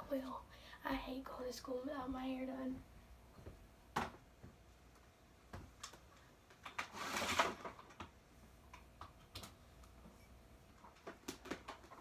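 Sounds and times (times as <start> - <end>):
rustling scrape: 6.8 - 7.8.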